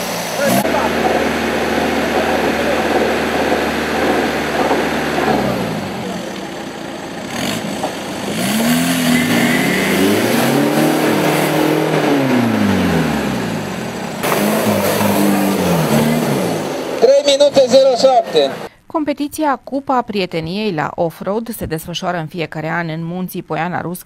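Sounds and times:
off-road engines revving: 0.0s - 18.7s.

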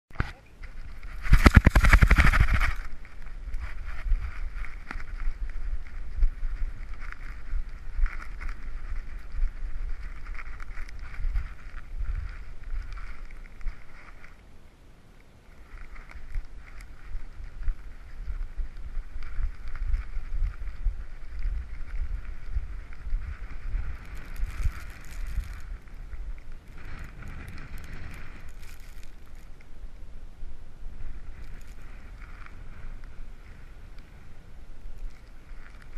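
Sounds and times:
muffled rubbing and bumping: 0.2s - 5.2s
wind buffeting: 0.6s - 14.8s, 15.4s - 35.9s.

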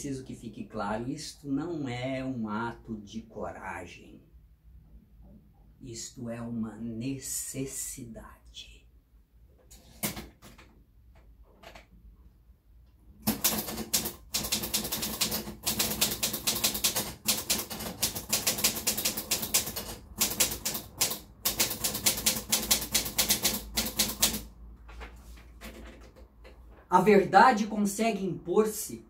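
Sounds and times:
manual typewriter keystrokes: 13.2s - 24.5s.

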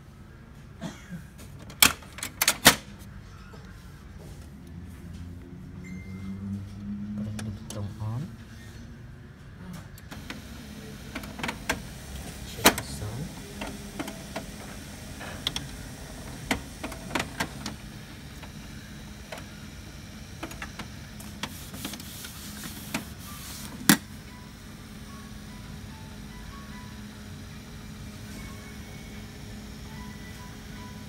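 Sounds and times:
laser printer humming and clicking: 10.0s - 24.6s.

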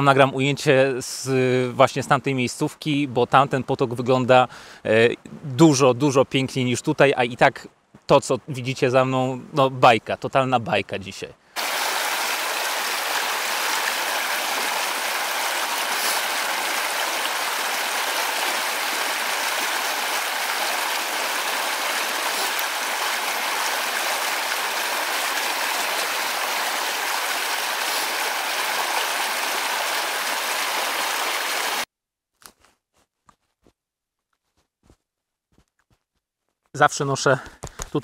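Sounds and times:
stream rushing over stones: 11.6s - 31.9s.

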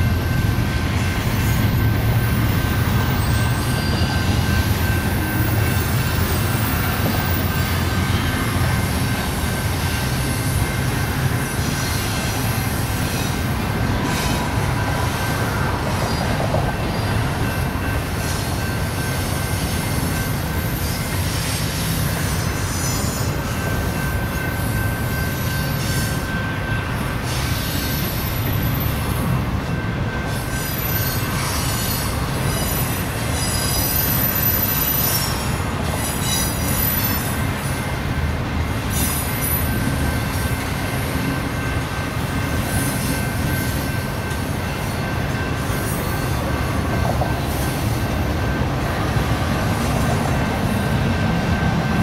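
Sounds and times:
train wheels rumbling on rail: 0.0s - 52.0s
high-pitched wheel squeal: 30.3s - 37.4s.

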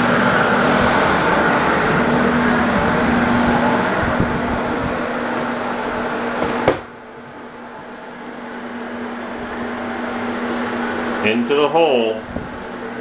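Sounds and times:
drying fans whirring: 0.0s - 13.0s
low hum: 0.0s - 13.0s
door shutting: 4.9s - 7.0s.

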